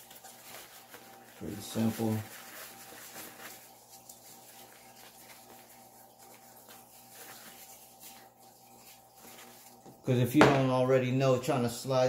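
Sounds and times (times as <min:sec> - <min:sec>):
fabric rustling: 0:00.0 - 0:10.0.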